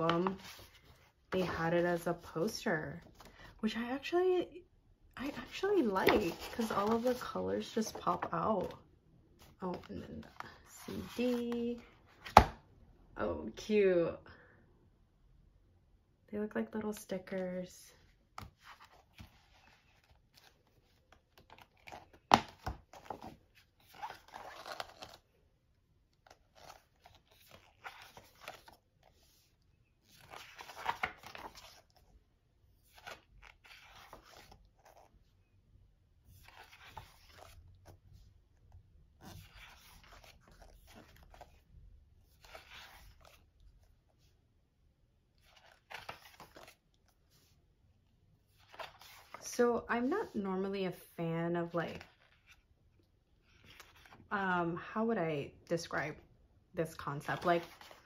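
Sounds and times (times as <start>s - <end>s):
pages turning: 0.0s - 1.8s, 5.3s - 8.8s, 9.4s - 12.6s, 18.3s - 25.3s, 26.1s - 32.1s, 32.8s - 35.1s, 36.2s - 38.3s, 39.2s - 41.6s, 42.2s - 44.3s, 45.4s - 47.5s, 48.4s - 49.4s, 51.9s - 52.7s, 53.4s - 54.2s, 57.2s - 58.0s.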